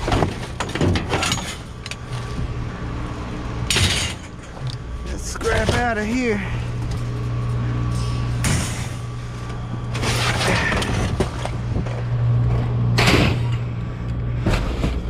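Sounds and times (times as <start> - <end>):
steady low hum: 0.0 - 15.0
debris scraping and rustling: 3.7 - 12.2.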